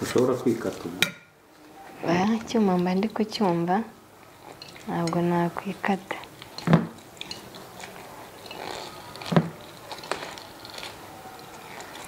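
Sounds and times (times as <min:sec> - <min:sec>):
knife scraping lime rind: 0:06.4 - 0:12.0.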